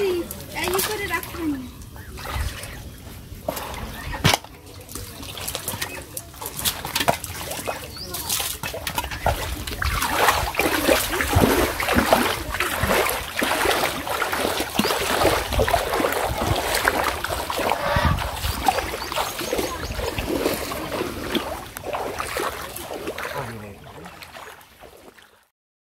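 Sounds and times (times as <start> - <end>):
splashing of shallow water: 0.0 - 25.5.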